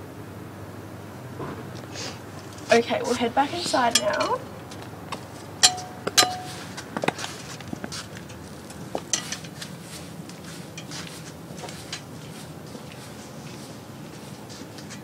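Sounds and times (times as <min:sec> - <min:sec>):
steady low hum: 0:00.0 - 0:15.0
high heel footsteps clicking: 0:03.6 - 0:15.0.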